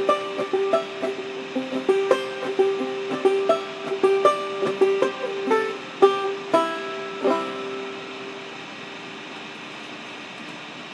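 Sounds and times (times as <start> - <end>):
banjo plucking and strumming: 0.0 - 8.5.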